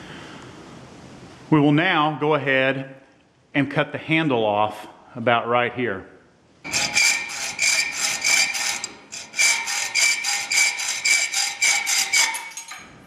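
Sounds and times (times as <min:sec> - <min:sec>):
hacksaw cutting metal: 0:06.7 - 0:13.0.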